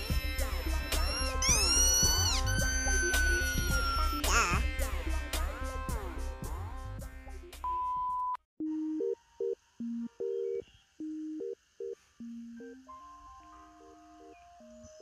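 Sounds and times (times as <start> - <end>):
electronic beep lullaby tune: 0.0 - 4.6, 7.7 - 15.0.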